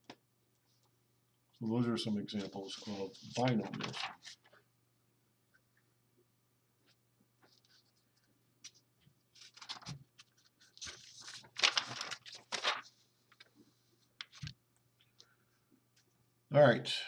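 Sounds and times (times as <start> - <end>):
paper rustling and crinkling: 2.3 - 4.6, 7.4 - 14.6.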